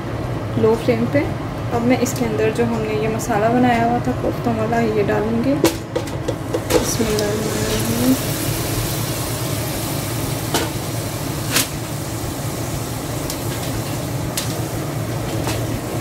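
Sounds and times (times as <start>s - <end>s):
kitchen machinery hum and hiss: 0.0s - 16.0s
metal pan knocking on cooking pot: 5.6s - 6.9s.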